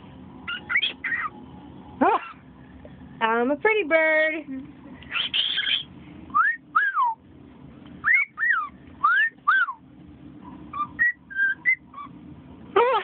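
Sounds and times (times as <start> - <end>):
cockatiel whistling: 0.5 - 1.3, 5.1 - 7.2, 8.0 - 9.8, 10.7 - 12.1.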